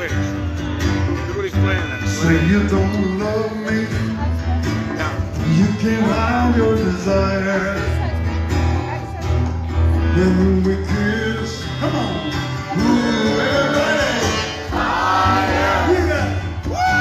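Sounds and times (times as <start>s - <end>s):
live rock band playing: 0.0s - 17.0s
person singing: 5.4s - 8.1s, 10.0s - 15.8s.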